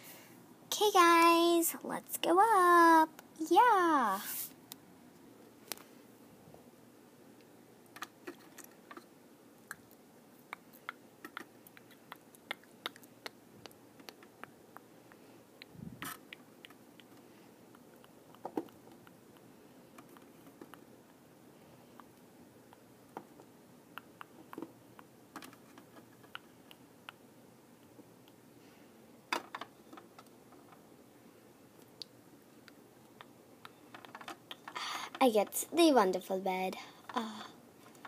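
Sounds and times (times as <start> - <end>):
plastic toys clicking and tapping: 33.7 - 35.6.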